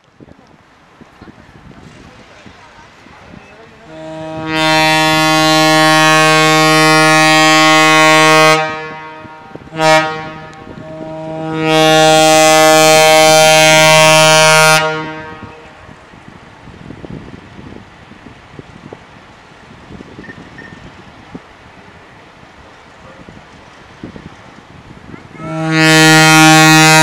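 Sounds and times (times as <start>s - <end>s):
locomotive air horn blasts: 3.8s - 16.0s, 25.3s - 27.0s.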